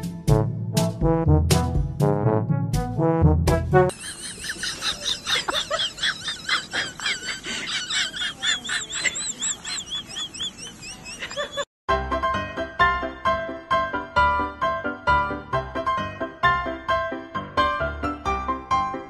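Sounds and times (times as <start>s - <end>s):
brass music: 0.0s - 3.9s
rapid high-pitched chirping calls: 7.6s - 11.6s.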